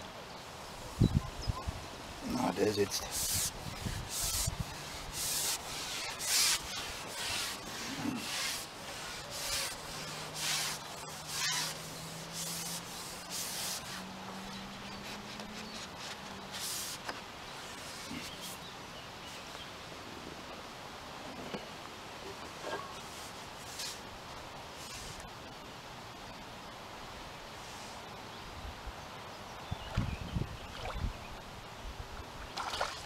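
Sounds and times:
fishing pole scratchy rubbing: 2.8 - 18.6, 23.0 - 24.0.

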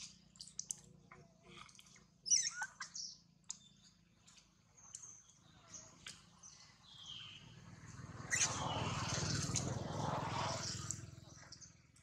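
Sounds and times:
faint bird chirps: 2.2 - 7.6
monkey high-pitched call: 2.3 - 3.0, 8.3 - 8.7.

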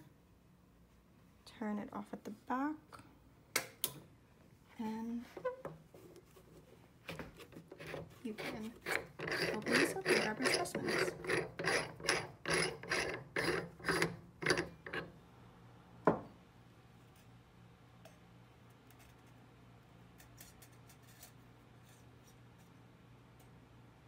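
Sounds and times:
metal threads rasping: 7.4 - 15.1.

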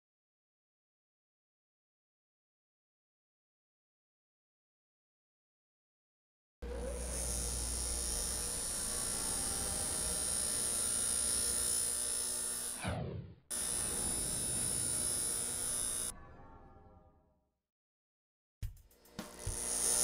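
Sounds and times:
angle grinder grinding metal: 6.6 - 12.8, 13.5 - 16.2, 19.0 - 20.0
falling pitch swoop: 12.8 - 13.4.

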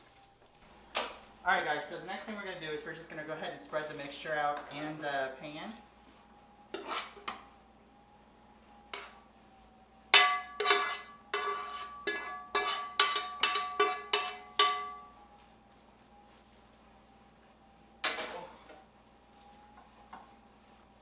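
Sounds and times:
spoon scraping a pan: 6.7 - 7.4, 10.6 - 15.0
spoon knocking a ringing pan: 10.1 - 15.1.

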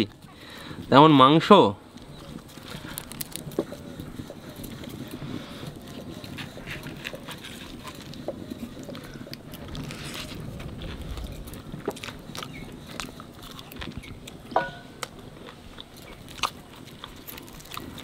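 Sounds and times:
chewing: 1.9 - 18.0
soft tearing of bread: 2.0 - 18.0.

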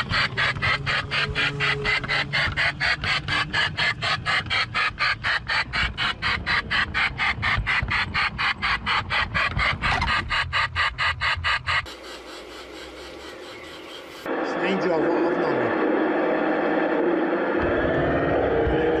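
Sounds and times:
model train chuffing: 0.0 - 14.3.

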